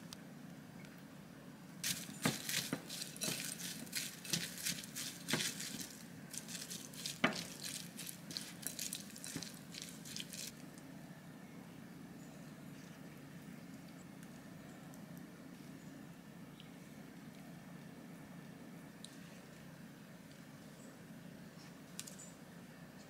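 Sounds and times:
wet squelching and stirring: 1.8 - 10.8.

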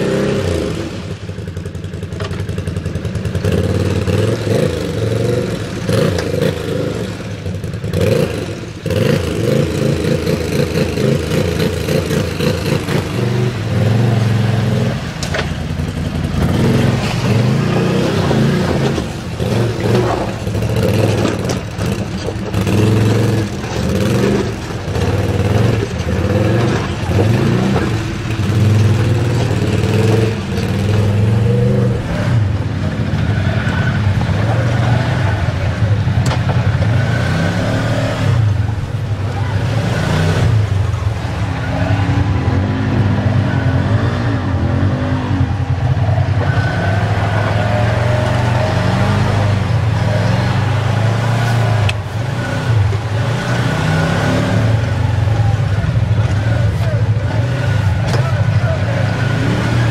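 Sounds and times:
atv engine revving: 0.0 - 59.9
water splashing around wheels: 0.0 - 59.9.

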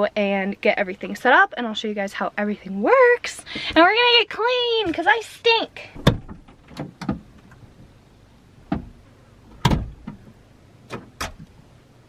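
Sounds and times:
gear knocking and clunking: 6.0 - 8.0.

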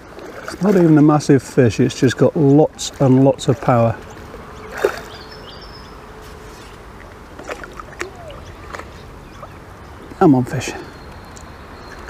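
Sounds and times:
outdoor background noise: 0.0 - 12.0
fish splashing at water surface: 2.8 - 5.6, 6.2 - 9.6.

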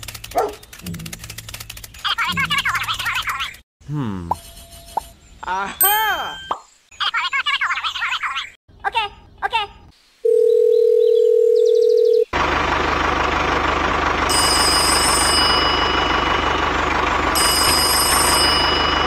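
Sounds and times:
toy tractor engine chugging: 12.4 - 19.0
high ringing tone: 14.3 - 19.0.

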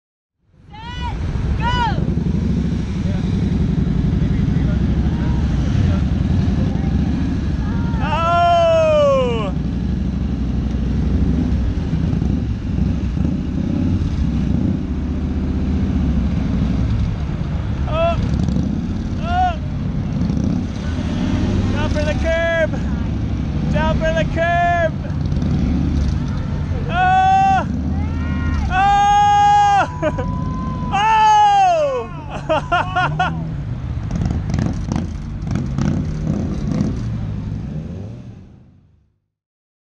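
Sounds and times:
motorcycle engines idling: 1.0 - 37.5
person calling out: 7.6 - 9.6, 17.8 - 18.3, 19.2 - 19.7, 26.6 - 32.5.

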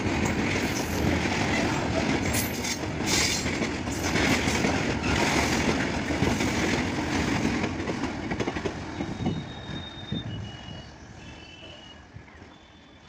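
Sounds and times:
freight train wheels clattering: 0.0 - 10.0.

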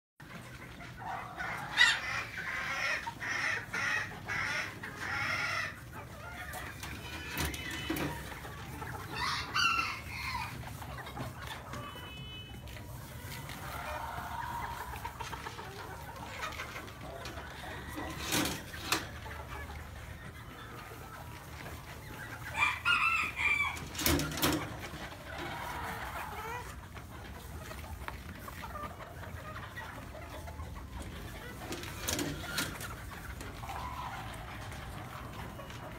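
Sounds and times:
chickens clucking: 0.2 - 35.9
rooster crowing: 22.6 - 24.0.

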